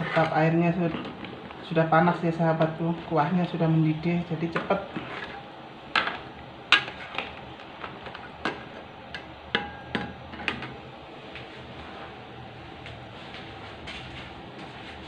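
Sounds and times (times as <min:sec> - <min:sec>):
metal utensils scraping wok: 0:00.0 - 0:01.3, 0:04.6 - 0:05.4, 0:06.8 - 0:07.4.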